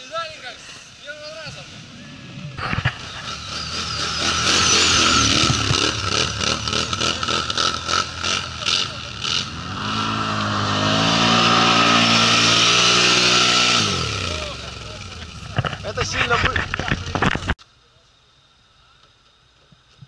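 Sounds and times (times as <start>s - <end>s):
quad bike engine revving: 2.0s - 17.6s
quad bike engine at high revs: 2.6s - 17.5s.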